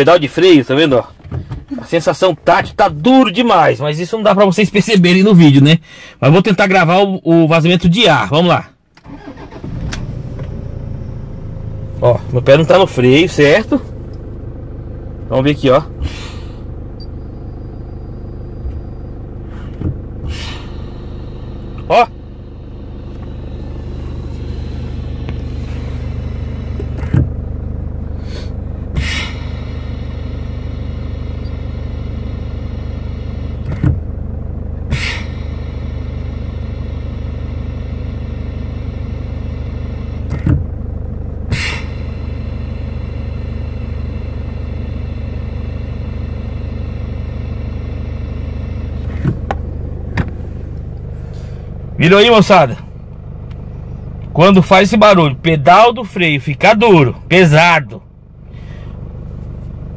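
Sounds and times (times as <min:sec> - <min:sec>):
car engine idling: 0:00.0 - 0:59.9
brake pedal knock: 0:01.1 - 0:01.7, 0:18.6 - 0:20.4, 0:23.0 - 0:27.5, 0:33.6 - 0:34.2, 0:40.2 - 0:41.8, 0:49.0 - 0:51.1.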